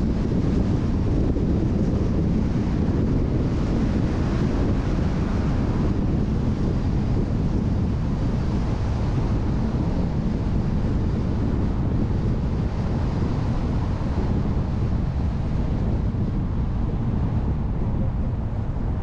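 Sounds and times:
car wind and road noise: 0:00.0 - 0:19.0
wind buffeting microphone: 0:00.0 - 0:19.0.

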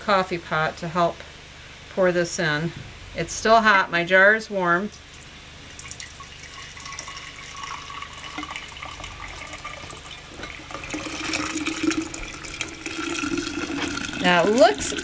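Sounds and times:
syrup trickling into a jar: 0:05.1 - 0:15.0.

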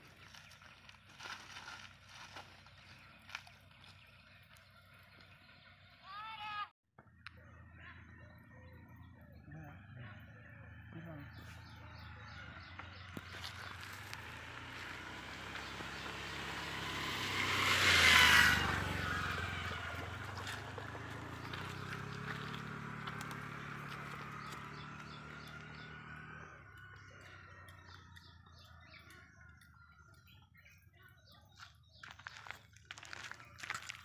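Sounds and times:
motor vehicle passing by: 0:07.0 - 0:34.0.

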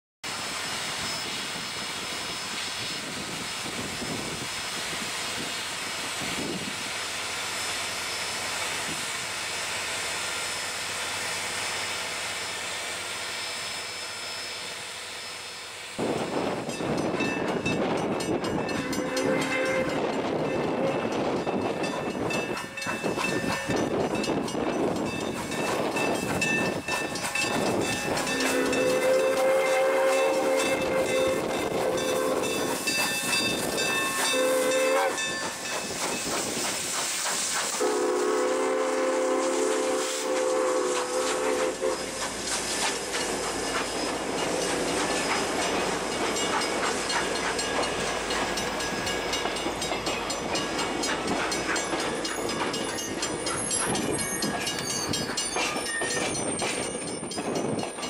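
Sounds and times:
steam locomotive running: 0:00.2 - 0:58.0
hiss of steam: 0:00.3 - 0:17.2, 0:22.8 - 0:56.8
steam whistle blowing: 0:18.7 - 0:21.2, 0:28.1 - 0:32.9, 0:33.6 - 0:35.4, 0:37.7 - 0:42.2.

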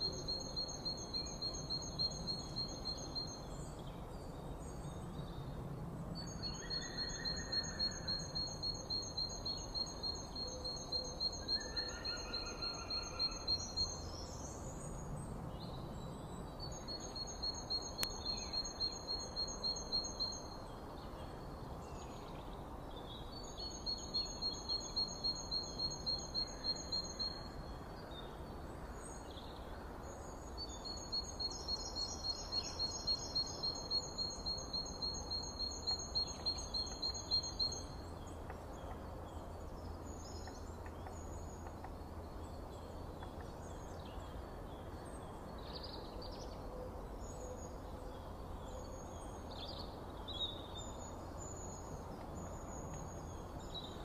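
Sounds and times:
soft whistled bird notes: 0:06.2 - 0:14.6.

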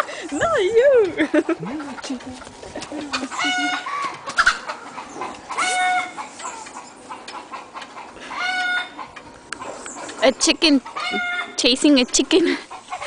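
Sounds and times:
chicken squawking: 0:03.1 - 0:09.8.

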